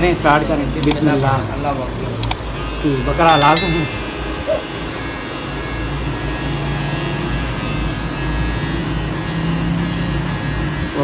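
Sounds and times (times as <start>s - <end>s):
electric hair clippers buzzing: 2.2s - 11.0s.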